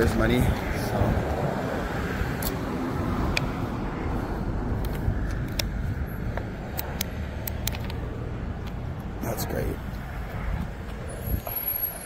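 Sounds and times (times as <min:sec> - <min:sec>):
passing cars rumbling: 0:00.0 - 0:12.0.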